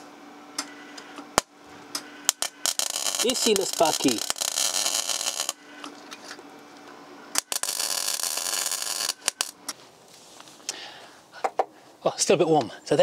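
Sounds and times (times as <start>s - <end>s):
welding arc crackle: 2.3s - 5.7s, 7.4s - 9.6s.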